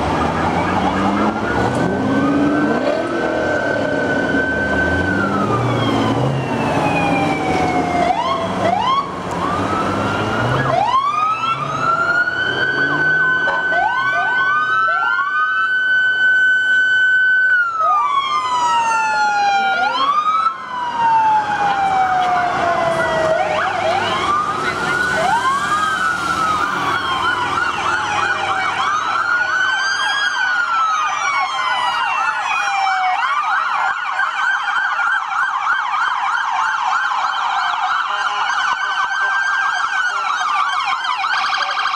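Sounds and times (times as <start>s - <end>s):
police sirens wailing: 0.0s - 41.9s
rapid siren yelp: 0.0s - 41.9s.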